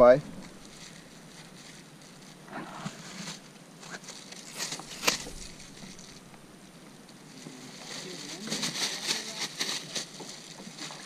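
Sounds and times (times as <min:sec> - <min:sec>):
twigs scraping plastic kayak: 0:00.4 - 0:06.5.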